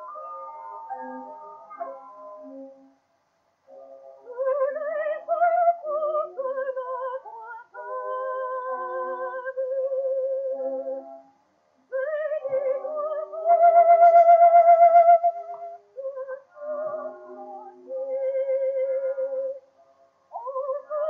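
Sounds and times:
contralto voice singing: 0:04.3 - 0:11.1, 0:11.9 - 0:19.6.

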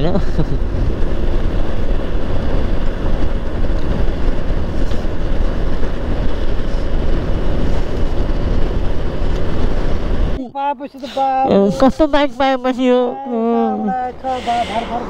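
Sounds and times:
motorcycle engine: 0:00.0 - 0:10.4
wind noise: 0:00.0 - 0:10.4
road noise: 0:00.0 - 0:15.0.

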